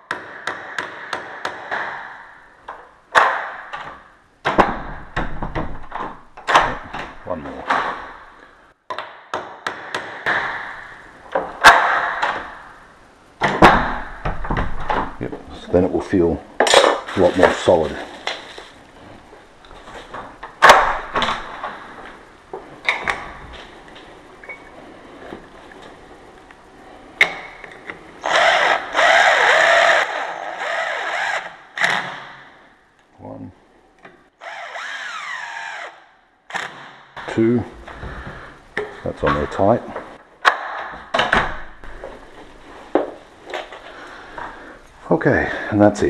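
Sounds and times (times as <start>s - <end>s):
cordless drill driving screw: 28.2s - 32.0s, 34.4s - 36.7s.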